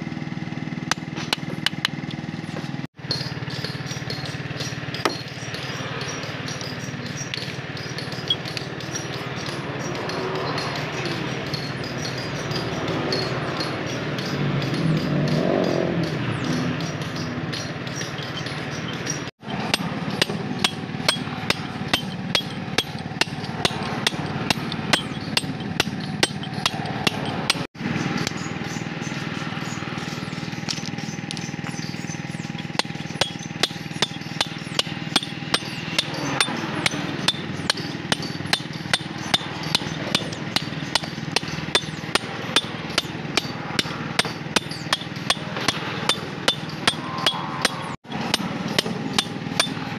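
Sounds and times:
hammer striking chisel on stone: 0.9 - 28.8, 30.0 - 49.9.

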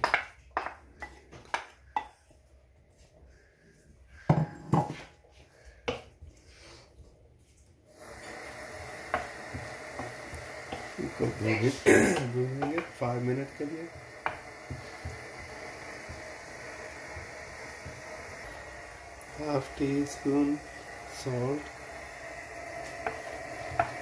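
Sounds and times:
wooden spoon stirring in pan: 0.0 - 24.0
steady hiss: 7.8 - 24.0.

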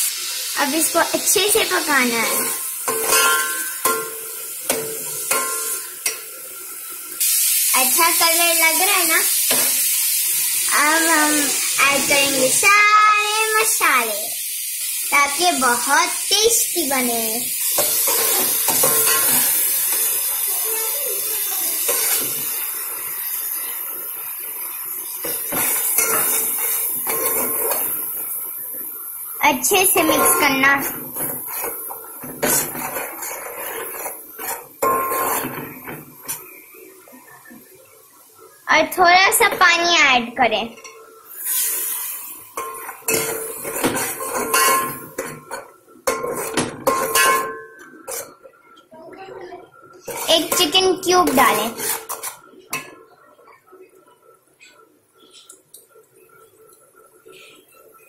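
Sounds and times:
oil sizzling: 0.0 - 58.0
metal fork clanking in steel pot: 2.9 - 4.1, 42.6 - 45.4, 46.1 - 48.3
metal utensil scraping steel pot: 21.9 - 22.4, 30.0 - 35.6, 42.6 - 48.4, 51.3 - 52.9.

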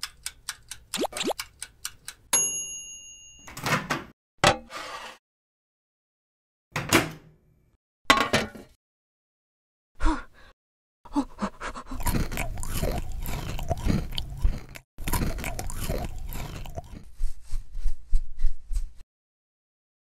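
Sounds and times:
crunching and chewing cookie: 11.8 - 17.1.

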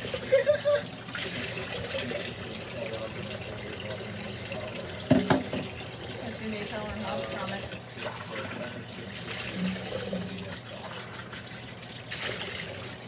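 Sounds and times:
tap running into sink: 5.0 - 5.8.

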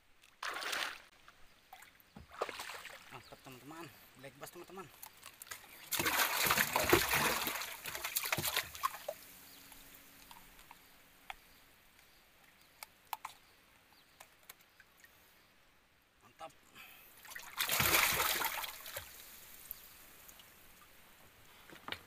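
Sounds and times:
water splashing and sloshing: 0.2 - 3.8, 4.5 - 10.8, 17.1 - 20.9.

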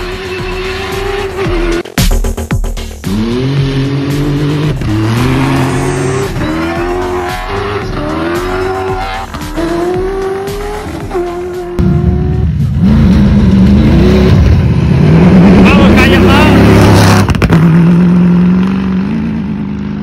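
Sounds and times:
car engine revving through gears: 0.0 - 1.9, 3.0 - 20.0
deep rumble: 11.8 - 19.0.

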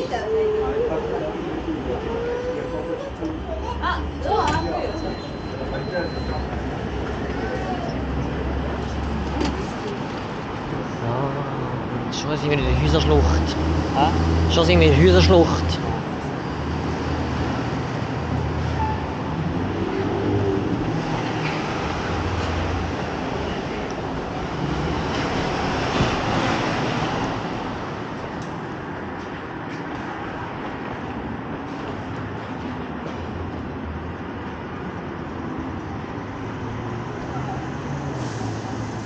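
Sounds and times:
traffic rumble: 0.0 - 39.0.

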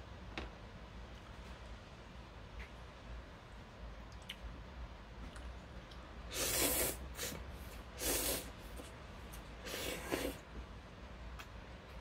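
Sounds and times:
person slurping noodles: 6.3 - 7.4, 8.0 - 8.6, 9.6 - 10.5.

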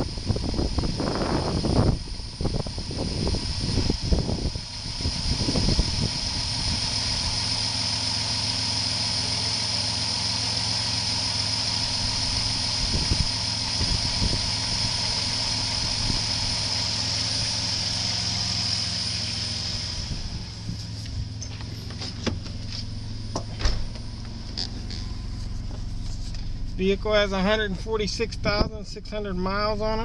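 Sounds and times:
car engine idling: 0.0 - 30.0
light engine knocks: 21.6 - 24.8.

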